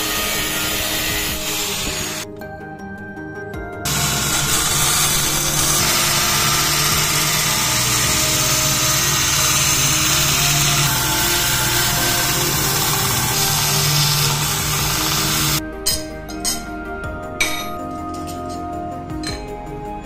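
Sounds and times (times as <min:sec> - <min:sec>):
belt grinder grinding steel: 0:00.0 - 0:02.3, 0:03.9 - 0:15.6.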